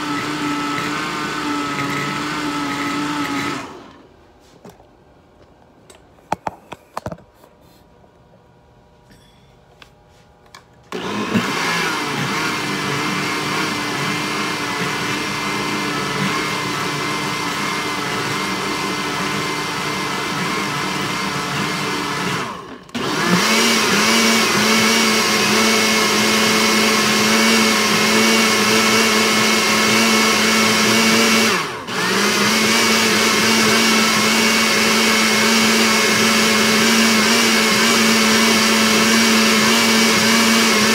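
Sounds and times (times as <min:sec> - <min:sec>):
blender motor running: 0:00.0 - 0:04.0, 0:10.9 - 0:40.9.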